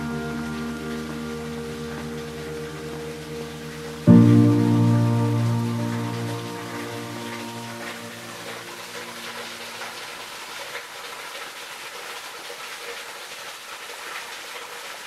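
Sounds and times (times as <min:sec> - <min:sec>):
background music: 0:00.0 - 0:09.4
water falling onto rocks: 0:00.0 - 0:15.0.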